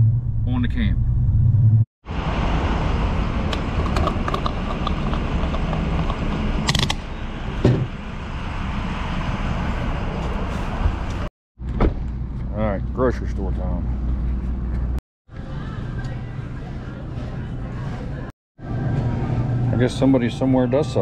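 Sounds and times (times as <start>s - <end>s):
road traffic noise: 1.2s - 21.0s
fuel cap rattling: 3.5s - 6.9s.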